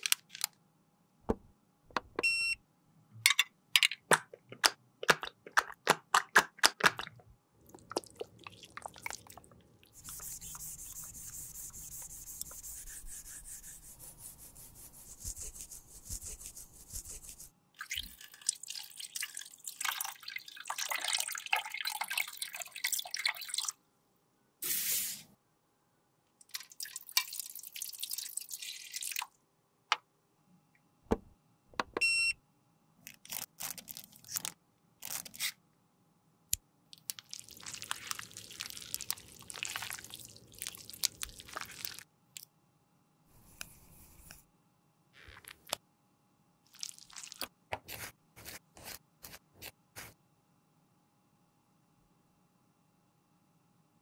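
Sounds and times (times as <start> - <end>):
brush swishing through liquid: 7.7 - 17.5, 46.8 - 50.2.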